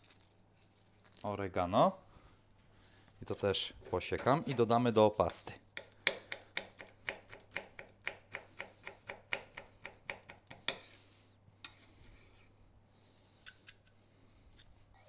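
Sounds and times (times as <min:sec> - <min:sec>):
knife chopping on wooden board: 0:05.8 - 0:10.9.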